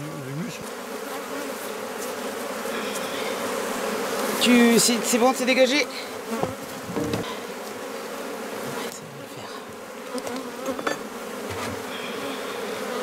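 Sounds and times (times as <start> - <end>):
honeybees buzzing: 0.0 - 13.0
knocks of wooden hive frames: 6.3 - 7.6, 10.0 - 11.9.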